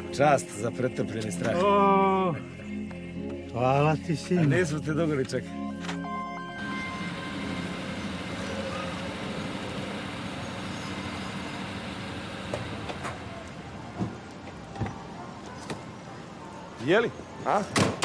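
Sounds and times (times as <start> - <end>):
car engine and road noise: 5.8 - 17.3.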